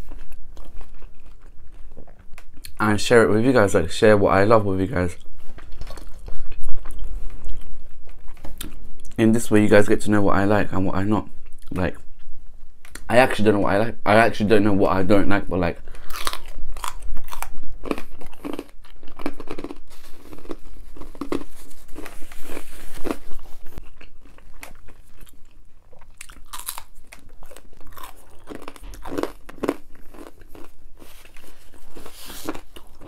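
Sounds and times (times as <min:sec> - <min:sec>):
chewing and crunching crust: 0:00.0 - 0:02.9, 0:05.0 - 0:09.2, 0:15.9 - 0:33.0.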